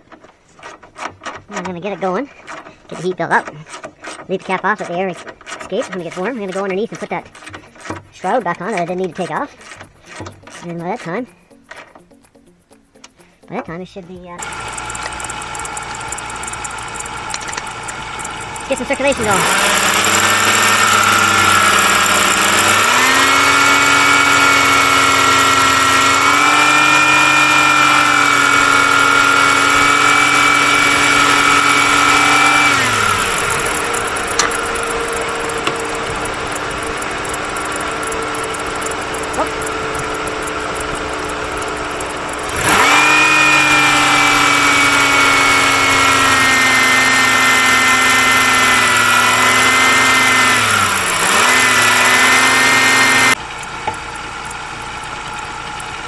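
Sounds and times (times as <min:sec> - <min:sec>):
car engine idling: 0:00.0 - 0:56.0
fine ticking: 0:00.0 - 0:56.0
loud steady whine: 0:14.4 - 0:56.0.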